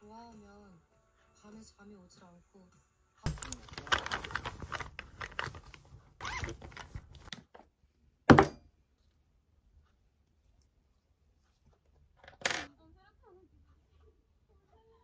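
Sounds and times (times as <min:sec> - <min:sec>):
objects being moved about: 0:03.3 - 0:07.5.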